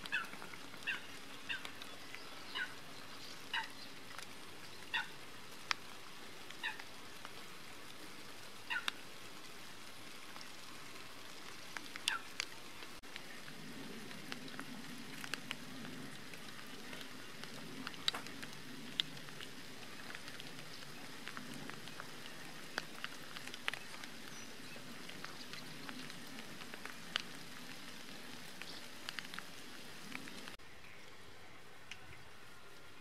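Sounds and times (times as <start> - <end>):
raindrop ticks: 0.0 - 31.2
light rain falling: 0.0 - 33.0.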